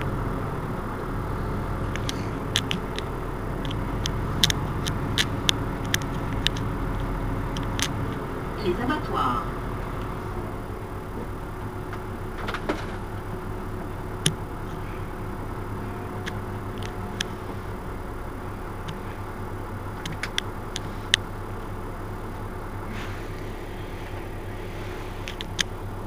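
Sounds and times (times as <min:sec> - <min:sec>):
bus engine idling: 0:00.0 - 0:26.0
sharp clicks and taps: 0:01.8 - 0:08.3, 0:20.0 - 0:21.2.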